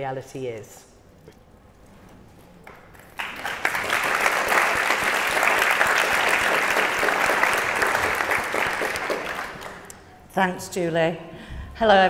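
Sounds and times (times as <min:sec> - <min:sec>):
audience applauding: 0:03.1 - 0:10.1.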